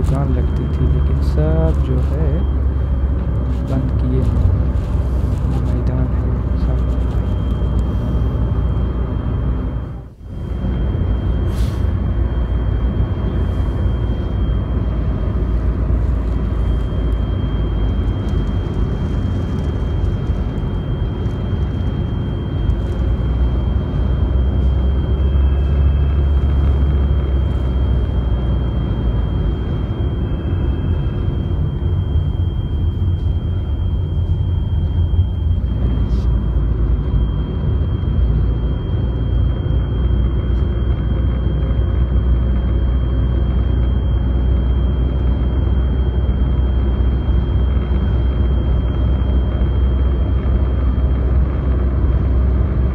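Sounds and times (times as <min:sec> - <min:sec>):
road and wind noise rumble: 0:00.0 - 0:52.9
faint high-pitched tone: 0:00.2 - 0:03.0, 0:23.2 - 0:38.7.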